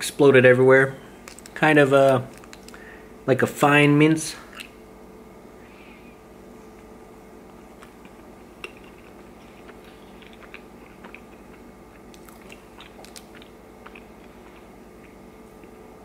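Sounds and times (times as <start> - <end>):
faint steady hum: 0.0 - 16.0
person chewing food: 7.4 - 15.8.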